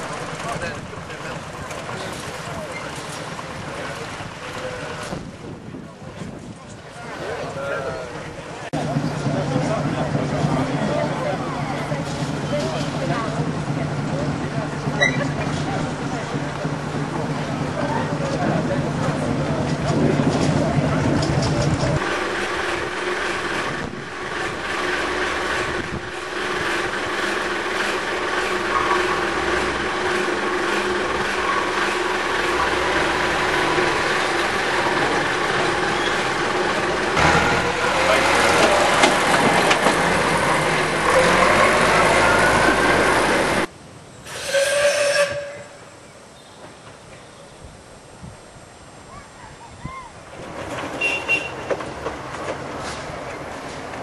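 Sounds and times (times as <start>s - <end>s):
narrow-gauge train rumbling: 0.0s - 54.0s
train whistle blast: 44.3s - 45.9s.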